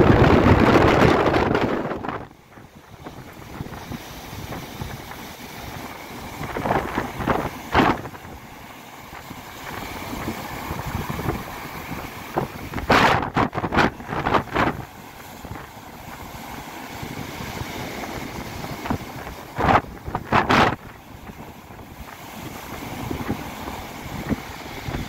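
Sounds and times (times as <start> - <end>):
storm waves breaking on beach: 0.0 - 25.0
wind gusts on microphone: 0.0 - 25.0.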